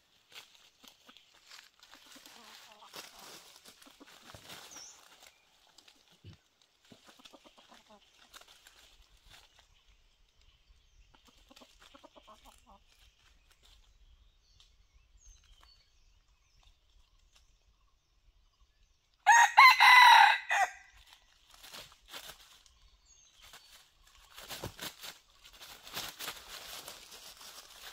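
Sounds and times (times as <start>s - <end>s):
chicken clucking: 0.6s - 4.6s, 6.2s - 9.0s, 11.1s - 13.1s
rooster crowing: 19.3s - 20.8s.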